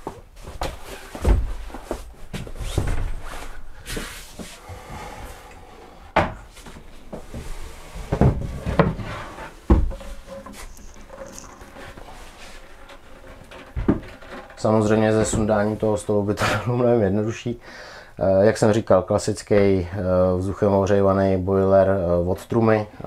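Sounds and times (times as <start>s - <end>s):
wooden panels knocking and thumping: 0.0s - 3.2s, 6.1s - 15.8s
quiet rustling: 6.4s - 16.5s.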